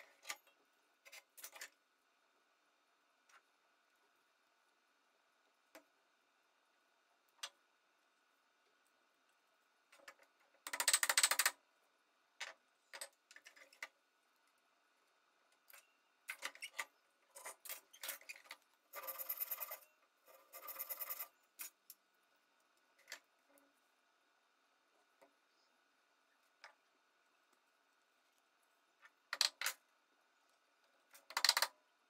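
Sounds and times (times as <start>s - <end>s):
wooden pieces clicking and tapping: 9.9s - 11.6s, 29.0s - 29.9s, 31.1s - 31.8s.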